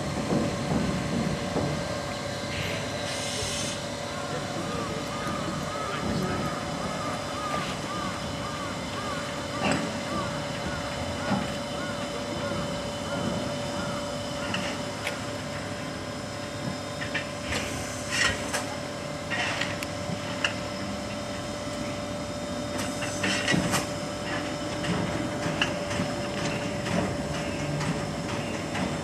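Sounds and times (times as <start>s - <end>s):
steam locomotive hum: 0.0s - 29.0s
steam hiss bursts: 2.5s - 3.8s.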